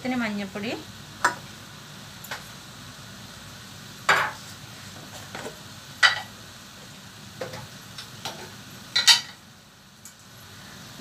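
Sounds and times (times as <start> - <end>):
pan sizzling: 0.0 - 11.0
kitchen utensils clinking: 8.3 - 9.4.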